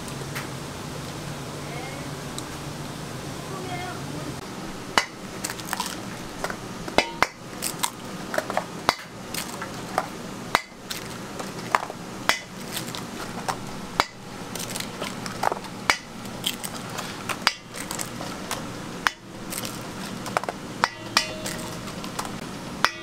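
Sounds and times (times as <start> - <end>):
steady low hum: 0.0 - 23.0
eggs cracking on steel bowl: 5.0 - 23.0.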